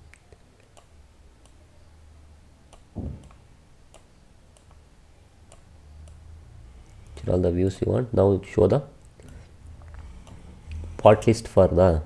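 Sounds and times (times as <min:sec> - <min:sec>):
faint low hum: 0:00.0 - 0:12.0
computer mouse clicks: 0:02.7 - 0:04.8, 0:05.5 - 0:06.2.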